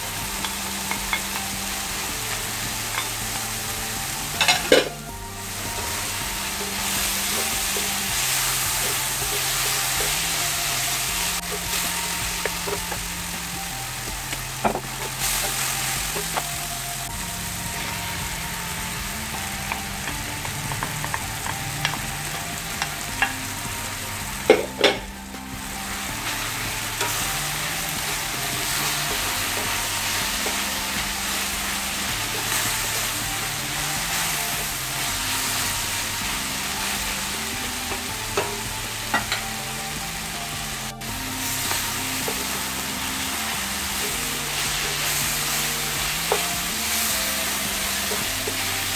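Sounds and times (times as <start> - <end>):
food sizzling in a wok: 0.0 - 48.9
vegetables clattering into pan: 4.3 - 5.1.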